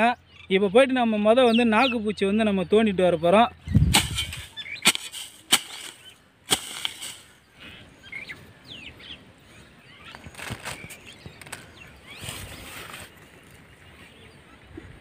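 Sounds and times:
faint bird chirps: 0:00.0 - 0:05.0, 0:06.8 - 0:15.0
hoe chopping into damp soil: 0:03.8 - 0:07.4.

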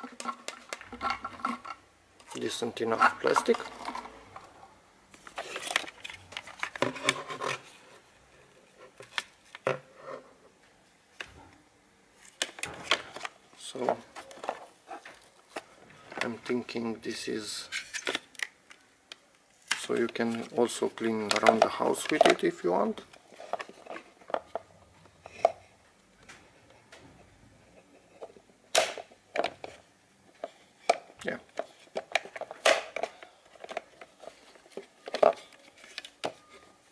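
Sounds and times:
plastic scraping against cardboard: 0:05.2 - 0:08.1.

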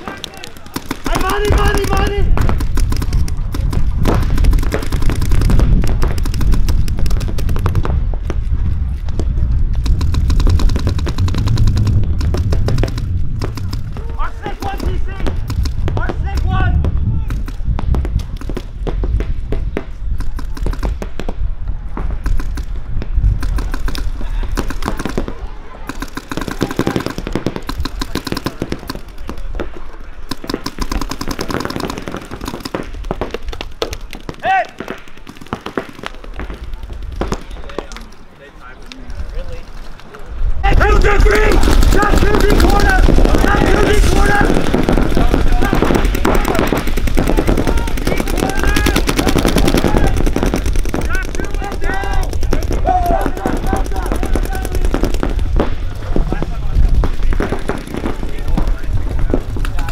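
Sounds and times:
paintball markers firing: 0:00.0 - 0:16.5, 0:17.2 - 0:21.4, 0:22.0 - 0:38.2, 0:40.8 - 0:59.9
low rumble: 0:02.2 - 0:14.2.

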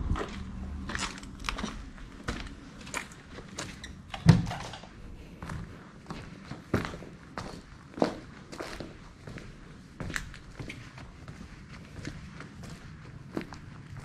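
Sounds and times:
footsteps over debris: 0:00.0 - 0:14.0.

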